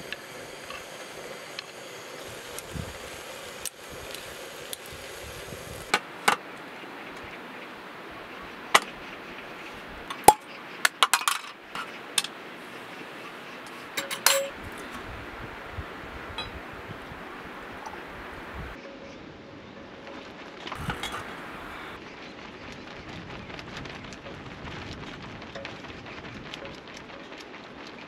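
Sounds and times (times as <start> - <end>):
background hiss: 0.0 - 18.8, 20.7 - 22.0
dishes clinking: 13.9 - 15.0, 16.4 - 16.6, 20.8 - 21.4.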